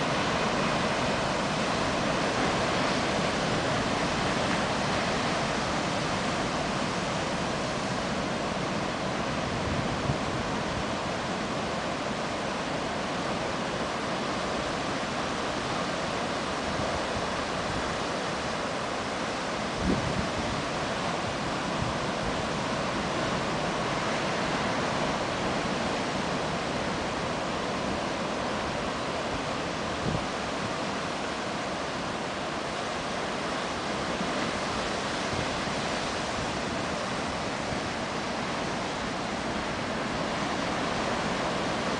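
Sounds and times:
wind on microphone: 0.0 - 11.5, 19.5 - 33.0.

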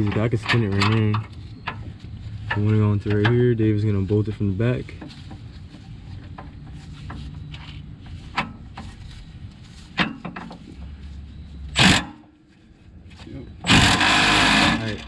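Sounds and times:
low steady background noise: 0.0 - 15.0.

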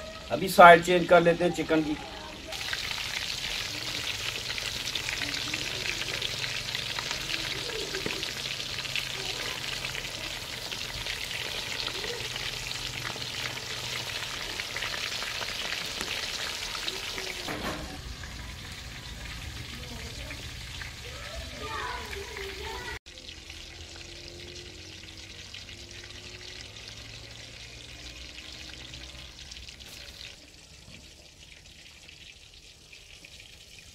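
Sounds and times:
chicken deep-frying in hot oil: 0.0 - 33.9.

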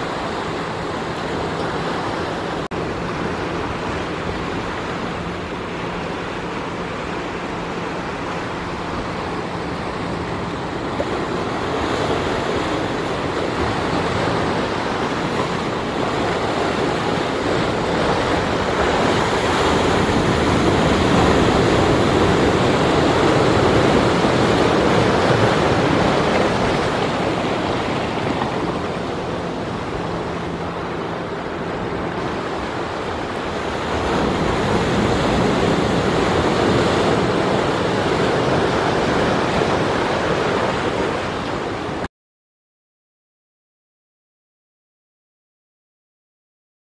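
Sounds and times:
surf breaking over rocks: 0.0 - 42.1.

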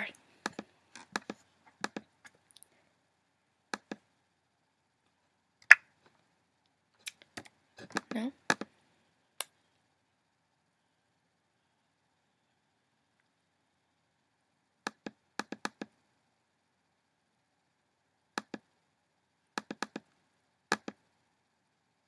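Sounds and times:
computer mouse buttons clicking: 19.6 - 20.0, 20.7 - 21.0.

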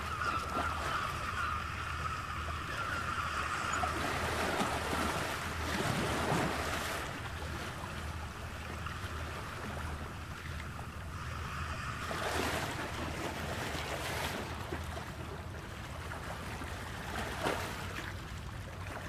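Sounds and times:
ocean waves rushing: 0.0 - 15.2.

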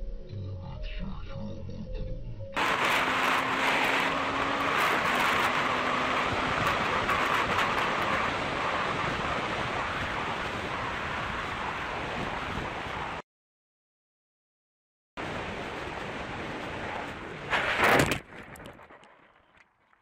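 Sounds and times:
wind and road noise: 2.6 - 13.2, 15.2 - 19.6.

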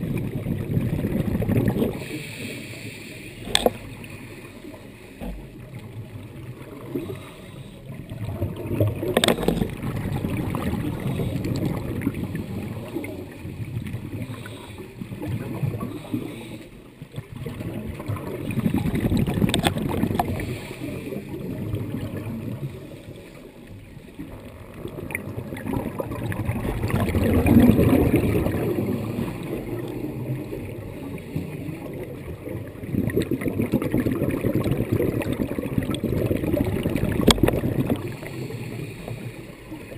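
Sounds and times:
bubbles gurgling underwater: 0.0 - 2.3, 3.4 - 39.9
diver breathing through regulator: 1.9 - 5.6, 6.9 - 8.1, 10.8 - 11.8, 14.2 - 16.9, 20.1 - 21.3, 37.8 - 39.9.

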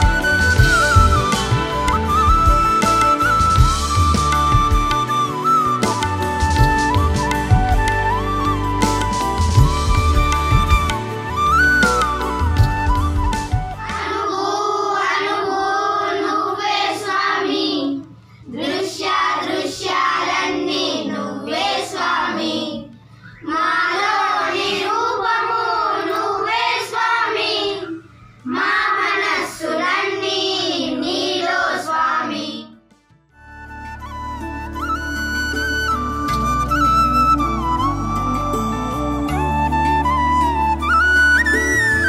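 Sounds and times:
children singing together: 13.8 - 32.8.

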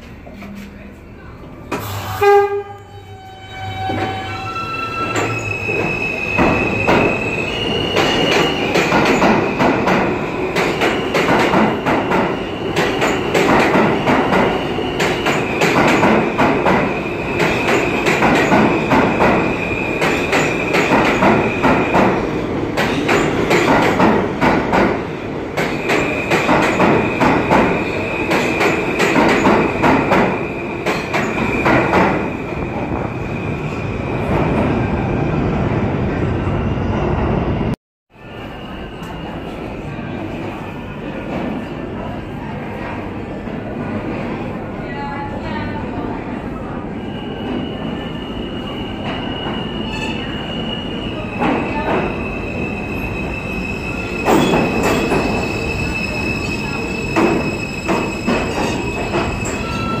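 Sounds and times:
subway train rumble: 0.0 - 60.0
high wheel squeal: 2.8 - 8.8, 47.0 - 60.0.

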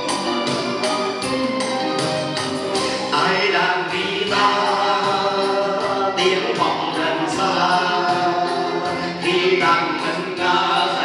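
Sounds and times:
acoustic guitar: 0.0 - 11.0
men singing together: 3.1 - 11.0.

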